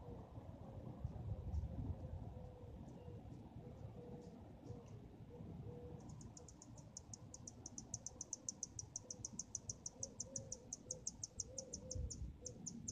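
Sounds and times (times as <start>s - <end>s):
faint low outdoor rumble: 0.0s - 12.9s
insect chirping: 5.7s - 12.9s.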